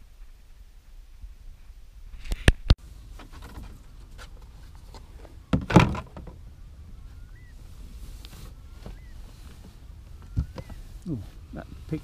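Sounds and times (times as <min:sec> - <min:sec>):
dull thump: 0:05.5 - 0:06.4.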